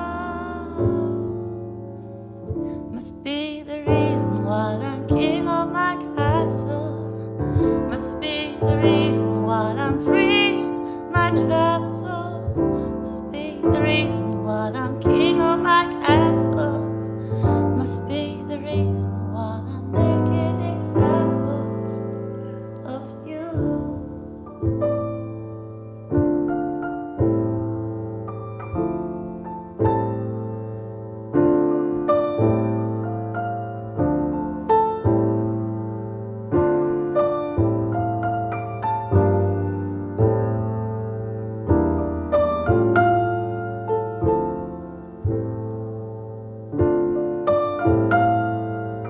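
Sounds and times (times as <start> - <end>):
piano ballad chords: 0.0 - 49.0.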